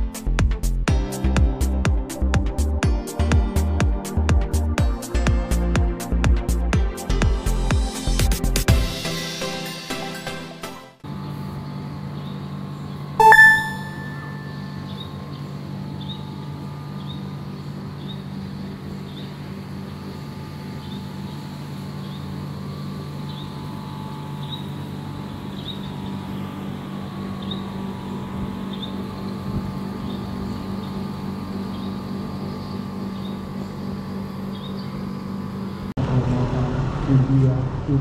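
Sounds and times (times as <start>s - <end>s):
faint short chirps: 13.2s - 15.0s
loud ringing tone: 13.2s - 15.0s.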